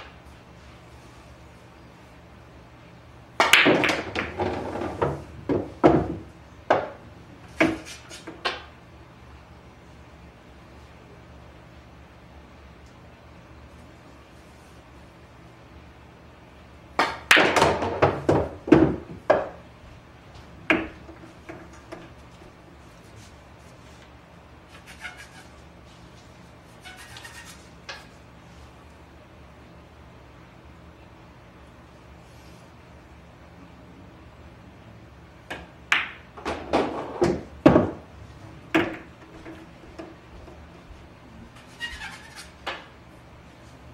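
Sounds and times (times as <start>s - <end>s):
pool balls clacking: 3.4s - 8.7s, 16.9s - 19.7s, 20.6s - 22.6s, 35.4s - 40.7s.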